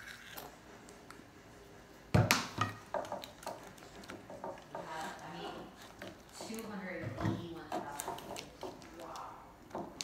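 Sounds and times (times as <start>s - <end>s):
spatula stirring sticky slime: 2.7s - 10.0s.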